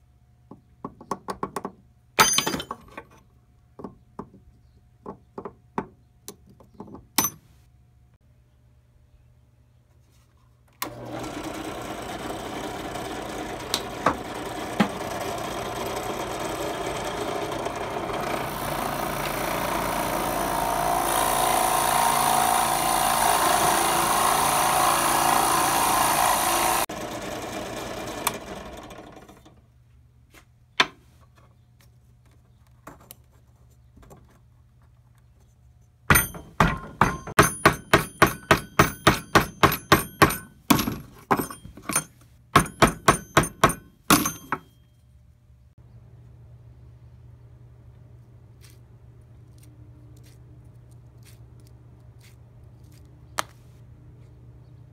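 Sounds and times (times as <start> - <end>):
metal hammer tapping: 6.8 - 7.4, 36.1 - 44.8
drill press boring into wood: 10.8 - 29.4.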